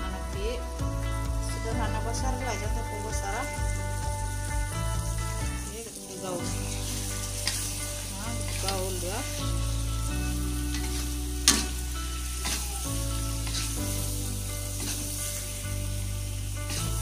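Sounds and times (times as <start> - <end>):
food sizzling in a wok: 0.0 - 17.0
metal spatula scraping a pan: 6.5 - 9.7, 10.6 - 12.6, 13.4 - 15.6.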